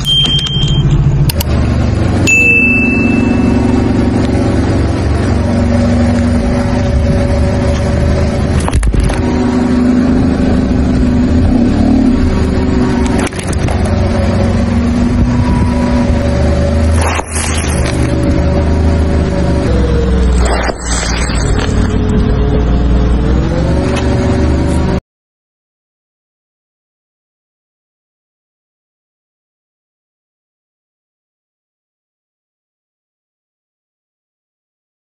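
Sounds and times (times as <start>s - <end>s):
car engine running: 0.0s - 25.0s.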